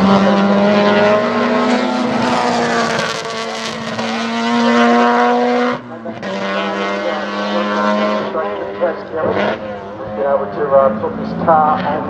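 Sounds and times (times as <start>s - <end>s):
race car engines: 0.0s - 12.0s.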